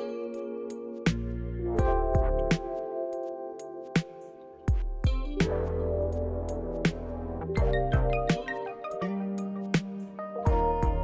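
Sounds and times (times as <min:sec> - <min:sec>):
music with chords and drum beat: 0:00.0 - 0:11.0
heavy low drum hit: 0:07.6 - 0:08.3.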